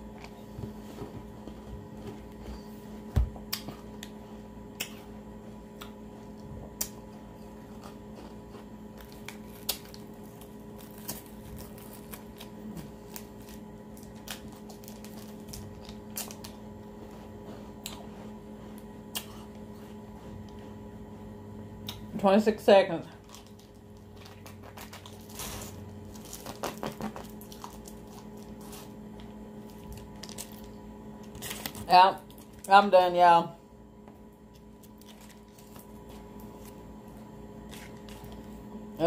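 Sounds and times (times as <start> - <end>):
steady low hum: 0.0 - 39.0
plastic sleeve crinkling: 9.0 - 17.0, 23.2 - 32.7.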